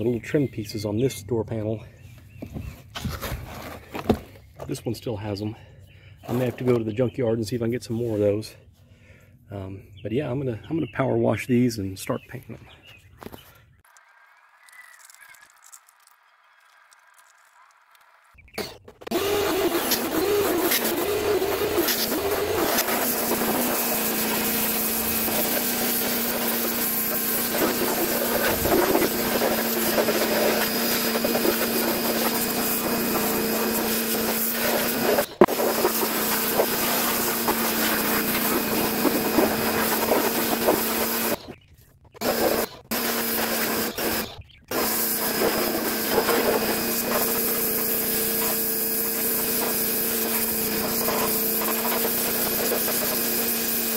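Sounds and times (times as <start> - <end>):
pressure washer motor humming: 18.6 - 41.6, 42.2 - 53.9
water jet hissing on plastic: 19.1 - 41.4, 42.2 - 53.9.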